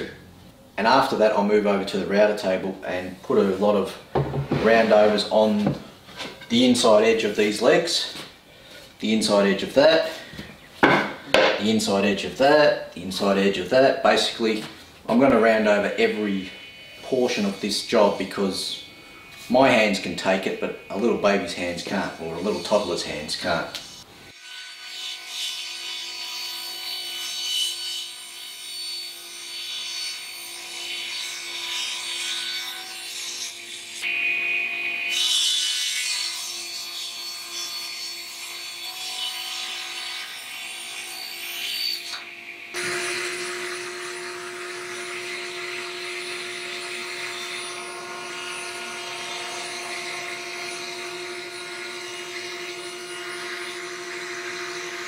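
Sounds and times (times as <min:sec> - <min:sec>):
table saw cutting wood: 0:15.2 - 0:55.0
router whining: 0:42.2 - 0:55.0.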